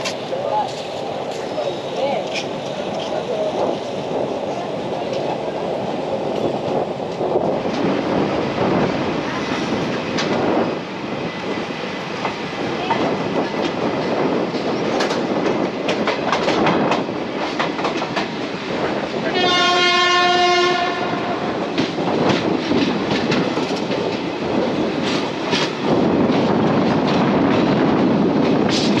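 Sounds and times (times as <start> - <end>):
train rumble: 0.0 - 29.0
locomotive horn blast: 19.3 - 21.4.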